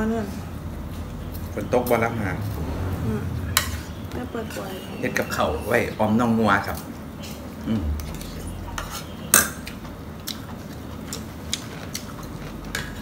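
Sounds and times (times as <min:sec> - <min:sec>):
spoons clinking on plates: 0:08.1 - 0:09.8.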